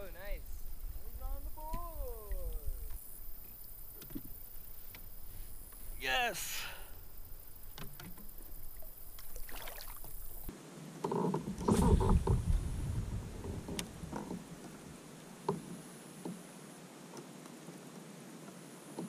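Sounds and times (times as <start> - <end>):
water splashing around kayak: 7.0 - 19.0.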